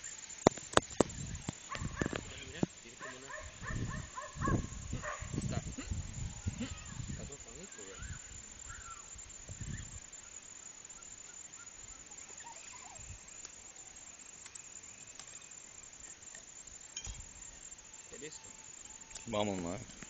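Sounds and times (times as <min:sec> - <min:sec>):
faint bird calls: 0:00.8 - 0:16.5.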